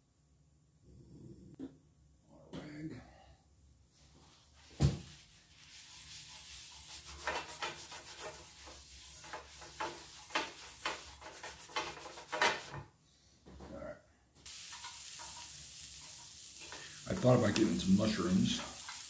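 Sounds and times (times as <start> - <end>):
paper towel rubbing grill pan: 5.1 - 12.8, 14.5 - 19.0
steady hiss: 14.4 - 19.0.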